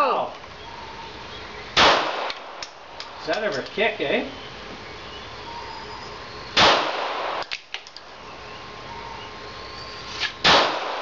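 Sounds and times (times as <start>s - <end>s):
handgun shot: 10.2s - 11.0s.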